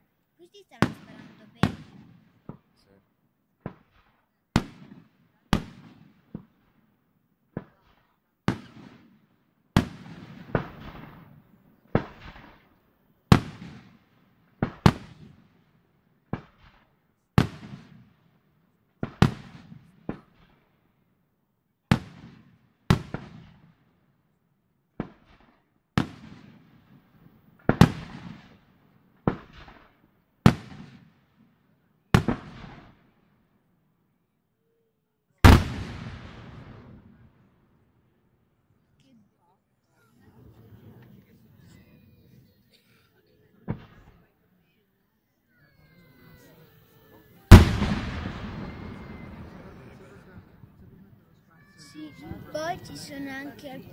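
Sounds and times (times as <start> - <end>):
rumbling echo: 47.5 - 50.8.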